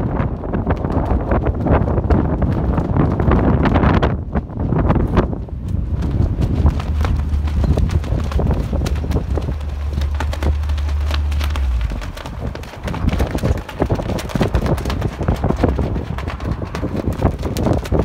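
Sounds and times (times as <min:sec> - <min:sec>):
low steady rumble: 0:00.0 - 0:18.0
footsteps crunching on gravel: 0:05.7 - 0:18.0.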